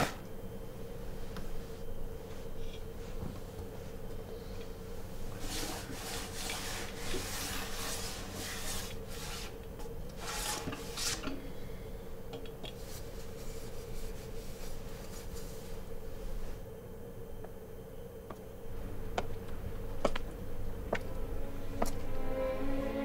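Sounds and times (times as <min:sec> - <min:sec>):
steady low hum: 0:00.0 - 0:23.0
scratchy rasping strokes: 0:05.4 - 0:09.6.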